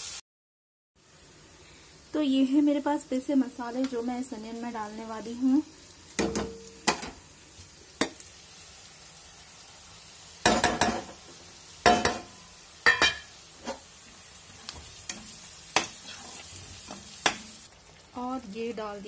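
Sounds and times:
onions sizzling in a pan: 0.0s - 0.2s, 1.0s - 19.0s
metal spatula scraping pan: 12.9s - 13.9s, 14.8s - 17.5s.

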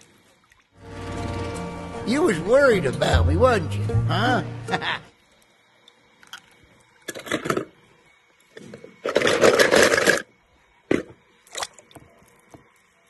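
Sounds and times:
toy cars clattering in plastic basket: 9.0s - 10.3s.

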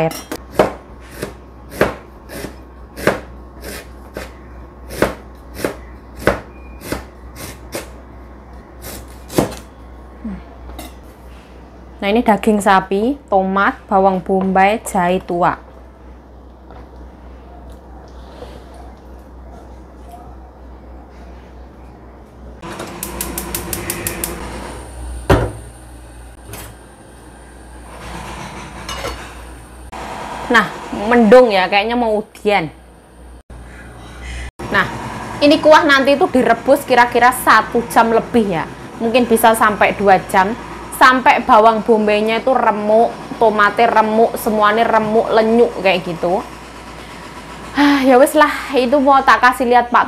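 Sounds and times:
knife chopping on cutting board: 0.5s - 7.1s.

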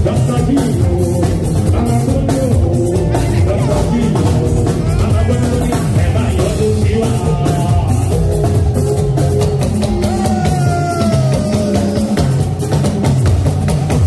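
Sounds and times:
man singing into a microphone: 0.0s - 8.5s, 9.9s - 12.5s
drum kit: 0.0s - 14.0s
keyboard: 0.0s - 14.0s.

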